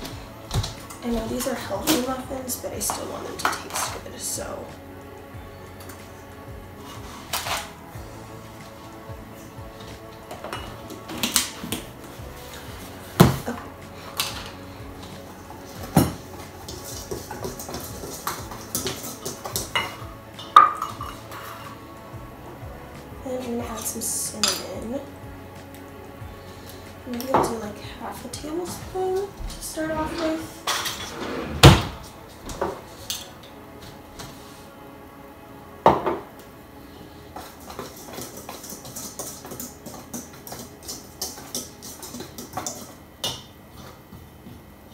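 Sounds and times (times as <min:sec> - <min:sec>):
utensil stirring in metal bowl: 0:08.5 - 0:21.8, 0:37.3 - 0:43.1.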